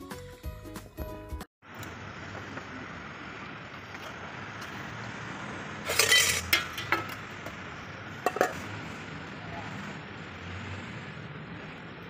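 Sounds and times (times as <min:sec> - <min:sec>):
hard objects clinking: 0:05.9 - 0:07.2.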